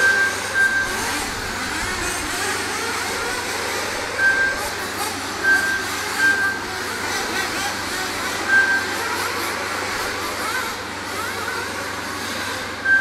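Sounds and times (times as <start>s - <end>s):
electronic beep: 0.0s - 1.0s, 4.2s - 4.7s, 5.4s - 6.6s, 8.5s - 9.0s
rc car engines buzzing and revving: 0.0s - 13.0s.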